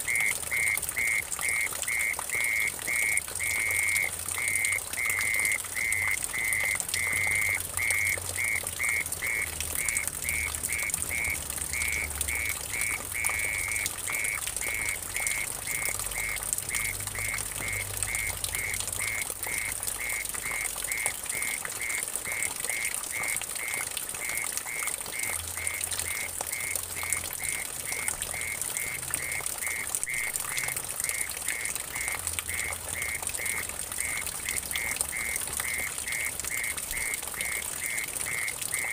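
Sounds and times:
water trickling into puddle: 0.0 - 38.9.

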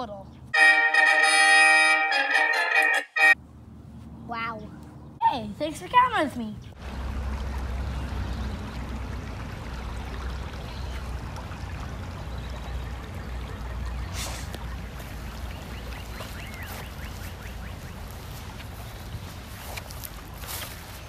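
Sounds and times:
water trickling over rocks: 6.8 - 21.0.

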